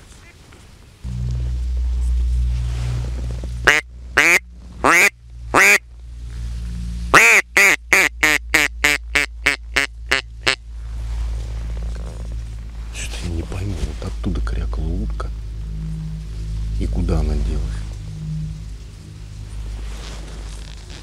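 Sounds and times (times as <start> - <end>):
duck call quacks: 3.6 - 5.8, 7.1 - 10.6.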